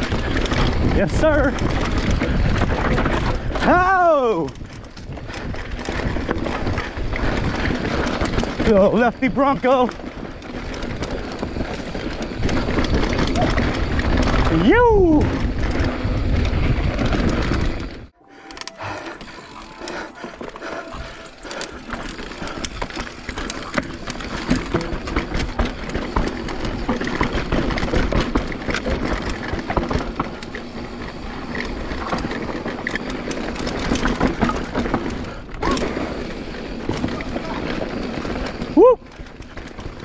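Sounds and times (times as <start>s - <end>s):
bike tyres on dirt and rock: 0.0s - 18.2s, 18.8s - 40.0s
chain and frame rattle: 19.3s - 30.7s.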